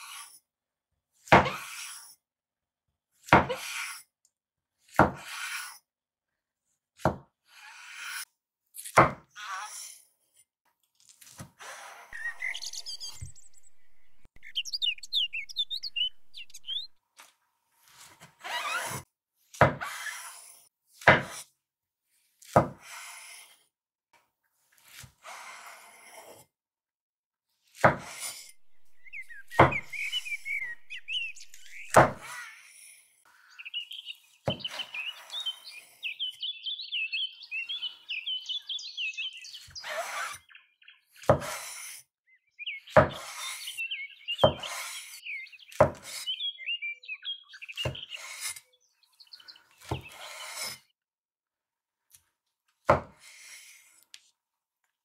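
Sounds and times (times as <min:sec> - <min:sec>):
birds chirping: 0:12.2 - 0:17.0, 0:28.5 - 0:32.3, 0:33.5 - 0:41.0, 0:42.6 - 0:50.3
knife chopping on wooden board: 0:27.9 - 0:32.2, 0:45.7 - 0:46.1.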